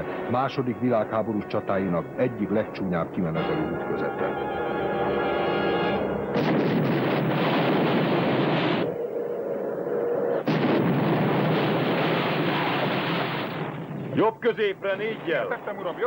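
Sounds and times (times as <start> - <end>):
long loud explosion: 6.3 - 8.9, 10.5 - 14.2
sharp blast: 6.3 - 8.9, 10.4 - 14.2.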